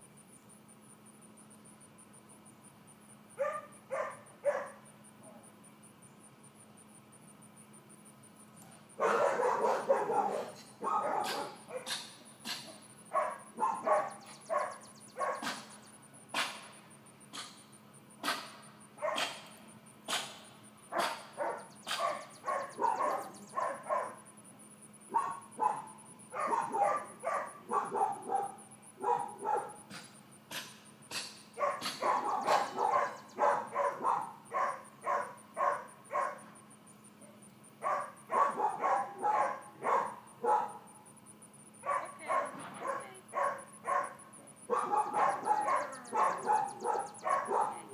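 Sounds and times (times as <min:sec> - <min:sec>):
dog barking and yipping: 0:03.4 - 0:05.4, 0:08.9 - 0:16.7, 0:18.2 - 0:24.3, 0:25.1 - 0:36.6, 0:37.2 - 0:41.0, 0:41.8 - 0:47.9.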